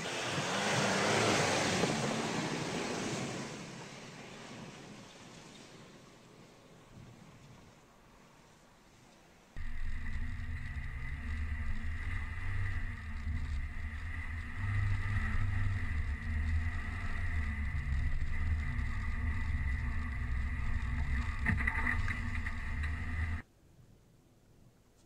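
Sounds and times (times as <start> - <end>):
brief crackle: 9.6 - 23.4
thin high whine: 9.6 - 23.4
van driving low rumble: 9.6 - 23.4.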